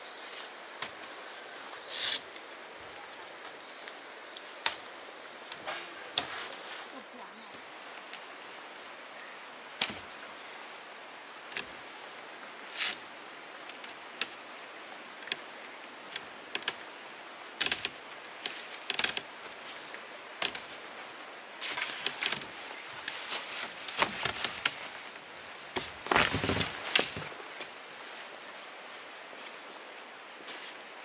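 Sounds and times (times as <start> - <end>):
steady background hiss: 0.0 - 31.0
tent poles clicking and rattling: 1.8 - 3.0, 12.6 - 14.5, 15.2 - 20.9, 21.6 - 27.8
wet tent fabric rustling: 18.4 - 31.0.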